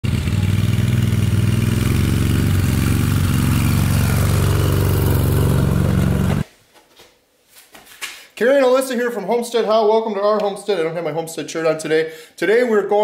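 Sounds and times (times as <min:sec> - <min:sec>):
small engine running: 0:00.0 - 0:06.4.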